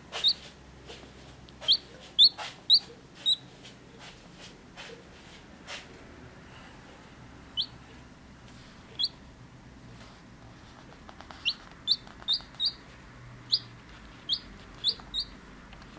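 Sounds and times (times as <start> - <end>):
chick peeping: 0.2 - 0.4, 1.6 - 3.5, 7.5 - 7.8, 8.9 - 9.2, 11.3 - 15.9.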